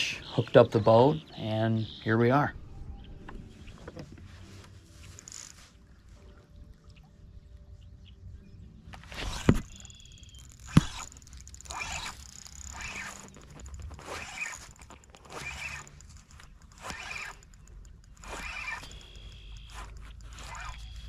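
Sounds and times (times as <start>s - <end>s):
fishing reel clicks: 9.3s - 21.0s.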